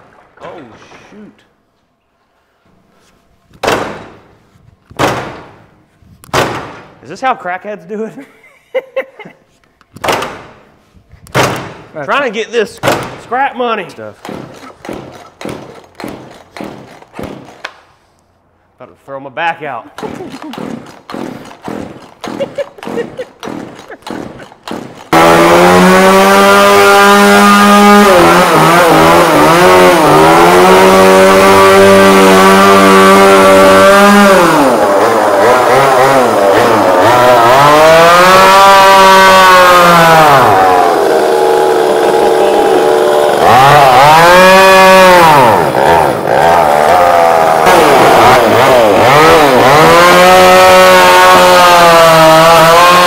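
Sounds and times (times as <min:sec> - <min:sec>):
chainsaw cutting metal: 0:14.1 - 0:17.8, 0:20.0 - 0:53.0
chainsaw pull-starting: 0:14.2 - 0:17.8, 0:20.0 - 0:53.0.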